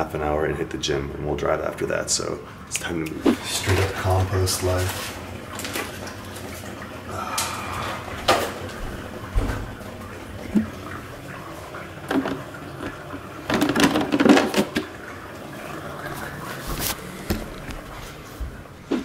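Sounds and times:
kitchen things knocking and clattering: 12.1s - 14.9s.

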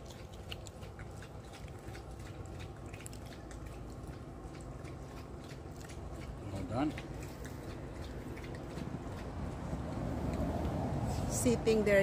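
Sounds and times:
people chewing: 0.0s - 10.8s
low steady background noise: 0.0s - 12.0s.

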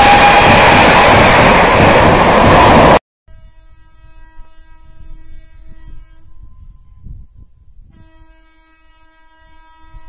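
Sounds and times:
train horn blast: 0.0s - 0.7s, 3.3s - 7.0s, 7.9s - 10.0s
low rumble: 0.0s - 3.0s.

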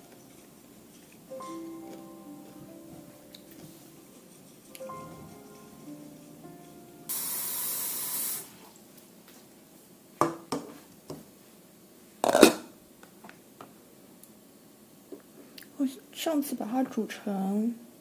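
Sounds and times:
tap water running into a saucepan: 7.1s - 8.5s.

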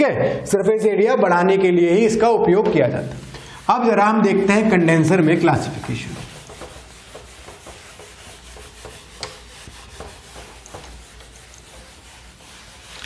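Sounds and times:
eraser rubbing on whiteboard: 5.2s - 13.0s.

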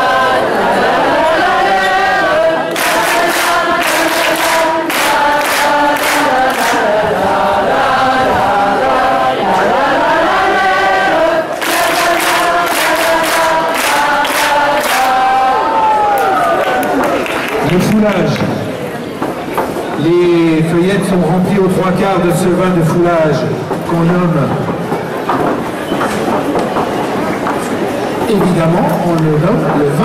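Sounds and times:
choir singing: 0.0s - 16.5s.

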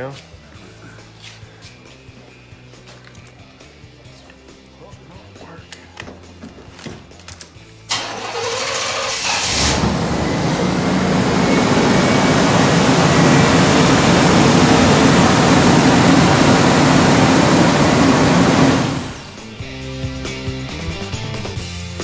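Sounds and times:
car engine running loud: 7.9s - 19.4s
starter motor cranking: 7.9s - 19.4s.

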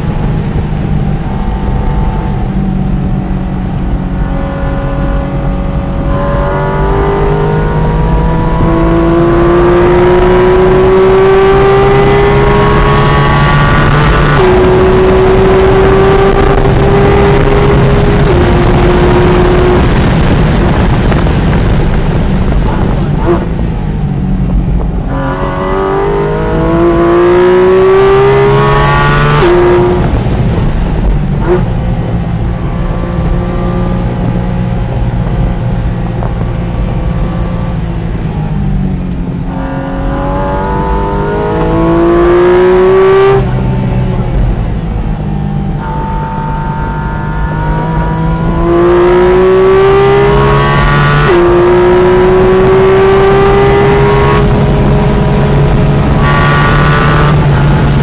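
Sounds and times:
car engine revving hard: 0.0s - 58.0s.

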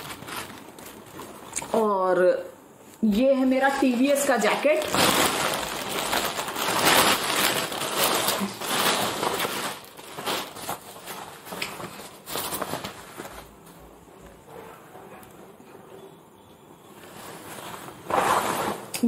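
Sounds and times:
plastic packaging crinkling: 0.0s - 1.9s, 3.6s - 13.9s.

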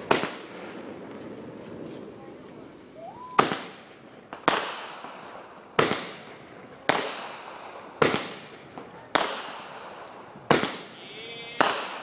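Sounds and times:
firework bangs with echo: 0.0s - 12.0s
firework rising whistle: 2.8s - 3.6s.

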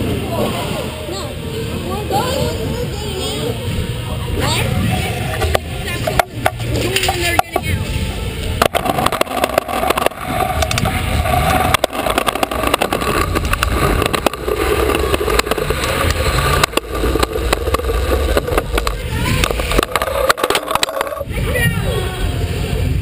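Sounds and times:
scooter wheels rolling on concrete: 4.4s - 22.2s.

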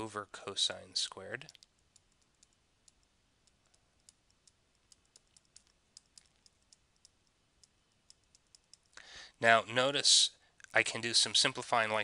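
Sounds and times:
stylus tapping on tablet: 1.6s - 9.0s.

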